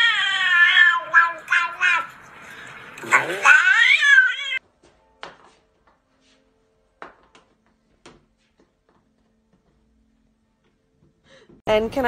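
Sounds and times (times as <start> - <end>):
cat yowling: 0.0 - 2.2, 3.0 - 4.6.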